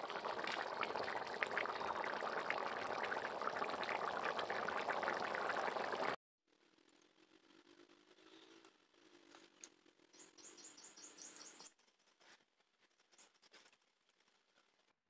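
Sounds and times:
curry boiling with sharp pops: 0:00.0 - 0:06.2.

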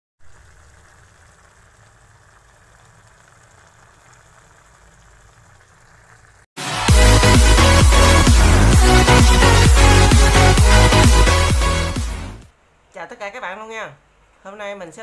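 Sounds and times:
sauce bubbling in a pan: 0:00.2 - 0:06.6
electronic dance music: 0:06.6 - 0:12.5.

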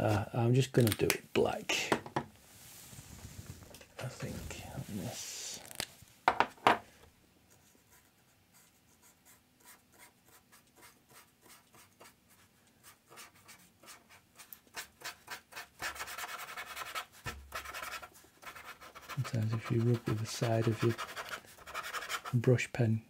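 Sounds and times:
brush pen scratching on paper: 0:07.6 - 0:22.5.

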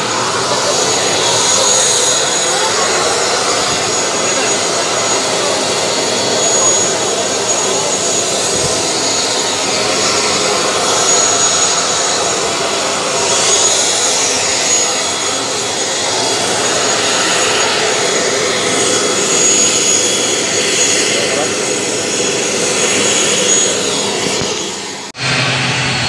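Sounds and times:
aircraft engine running: 0:00.0 - 0:26.0.

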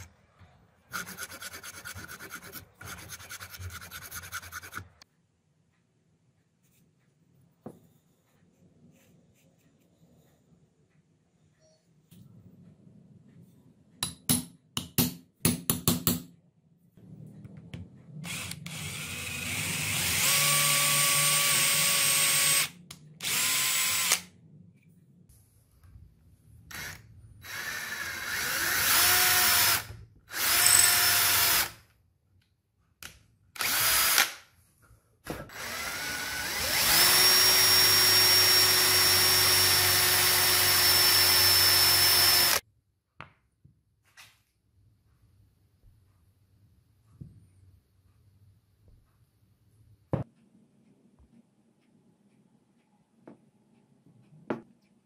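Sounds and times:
electric drill boring into wood: 0:18.3 - 0:24.2, 0:26.7 - 0:31.7, 0:33.6 - 0:34.4, 0:35.5 - 0:42.6.

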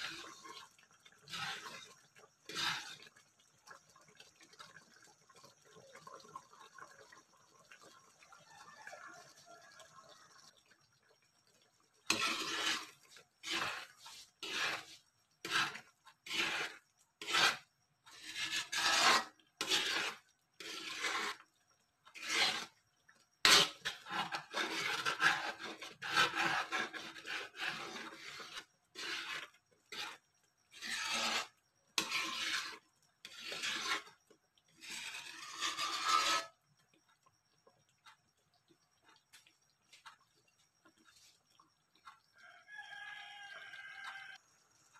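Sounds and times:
metal ladle scraping a pan: 0:00.0 - 0:03.2, 0:12.0 - 0:21.5, 0:22.1 - 0:22.8, 0:23.4 - 0:36.7.

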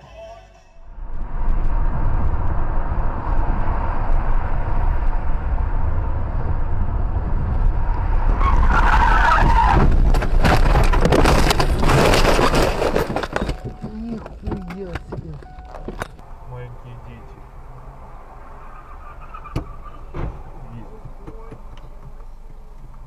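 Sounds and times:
road noise inside car: 0:00.8 - 0:23.0
car crash impacts: 0:08.4 - 0:16.2, 0:18.9 - 0:21.7
tyres squealing: 0:18.0 - 0:21.7.

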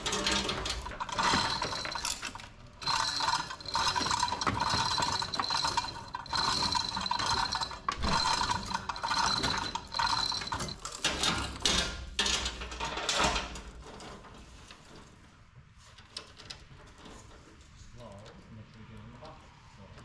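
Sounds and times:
steel chains rattling and clinking: 0:00.0 - 0:15.0.

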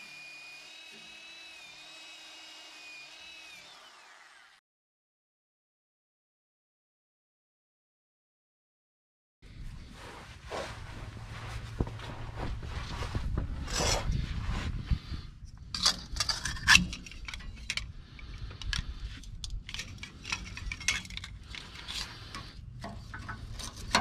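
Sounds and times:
metal clamp clinking and rattling: 0:15.7 - 0:22.4.

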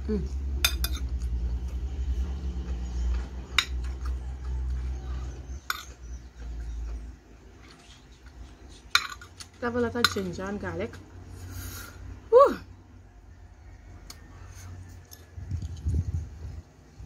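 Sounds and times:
spoon clinking on ceramic plate: 0:00.6 - 0:01.1, 0:05.6 - 0:06.0
low rumble: 0:15.3 - 0:17.0.

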